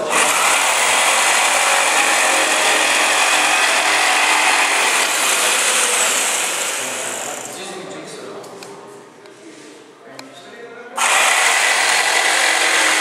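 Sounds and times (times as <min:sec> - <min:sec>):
electric jigsaw cutting wood: 0:00.0 - 0:07.5, 0:11.0 - 0:13.0.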